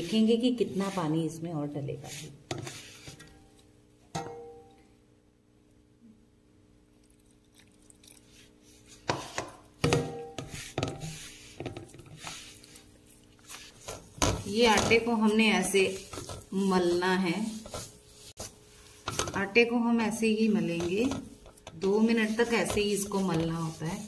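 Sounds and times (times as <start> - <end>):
hands mixing dough on steel plate: 0.0 - 3.8, 7.0 - 24.0
faint hum: 3.3 - 10.5.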